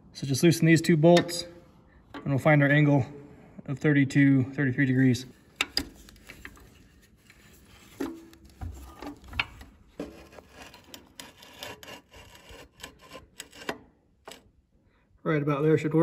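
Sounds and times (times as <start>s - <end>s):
metal clicks and scrapes: 5.5s - 14.6s.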